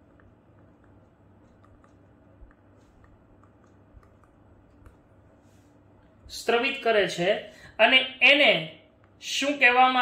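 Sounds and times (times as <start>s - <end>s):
stylus tapping on tablet screen: 0.0s - 5.1s.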